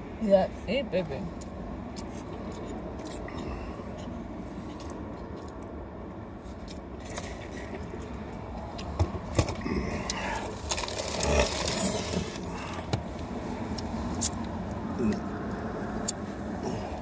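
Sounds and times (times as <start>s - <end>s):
car cabin rumble: 2.2s - 15.6s
scraping and rustling: 10.2s - 12.8s.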